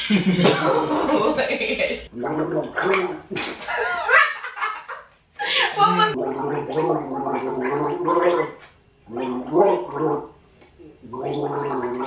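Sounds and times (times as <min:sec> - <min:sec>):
man gargling while singing: 0:02.1 - 0:03.6, 0:06.1 - 0:10.3, 0:11.0 - 0:12.0.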